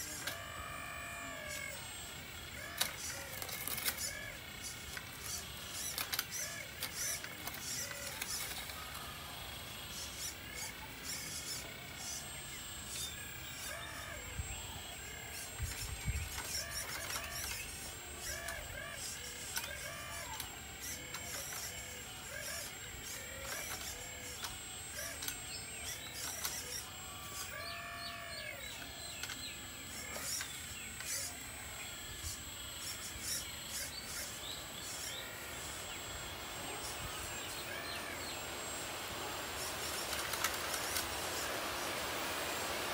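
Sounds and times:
birds chirping: 0.0s - 42.9s
faint steady hiss: 32.2s - 42.9s.

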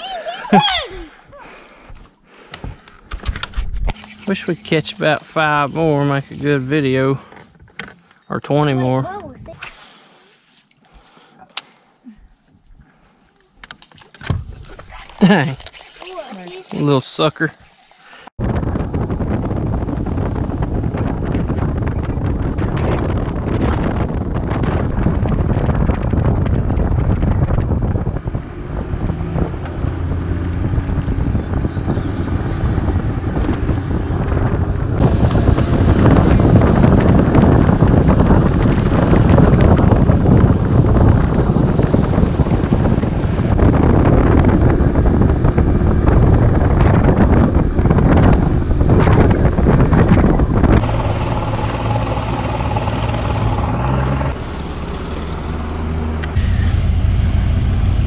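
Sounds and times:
wind buffeting microphone: 18.3s - 58.0s
outboard motor running: 19.8s - 58.0s.

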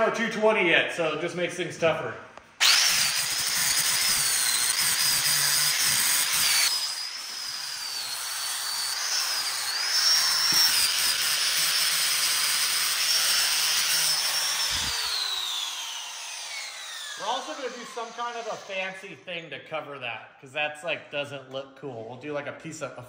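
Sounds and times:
angle grinder grinding metal: 2.6s - 19.2s.

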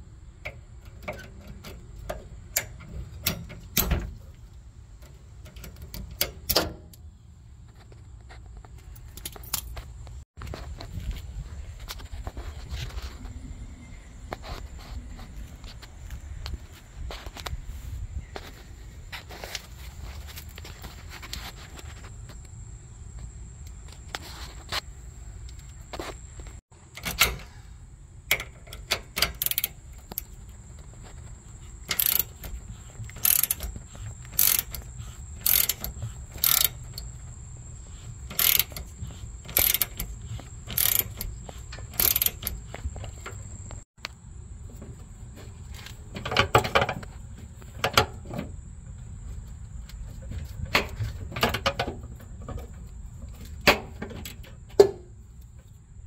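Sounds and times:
ratchet wrench clicking: 28.3s - 30.4s, 31.8s - 37.2s, 38.2s - 43.2s
metal tools clinking: 31.6s - 37.3s, 38.0s - 43.8s.

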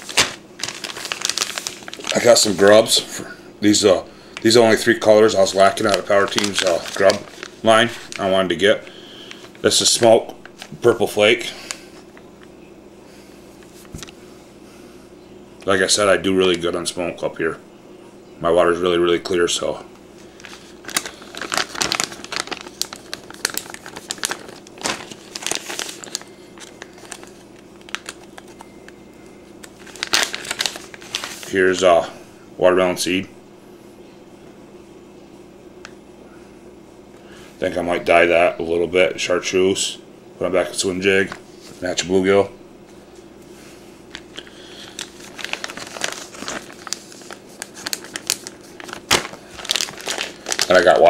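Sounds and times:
plastic bag crinkling: 0.0s - 3.0s, 4.2s - 12.0s, 20.2s - 28.7s, 29.6s - 31.6s, 44.0s - 51.0s.

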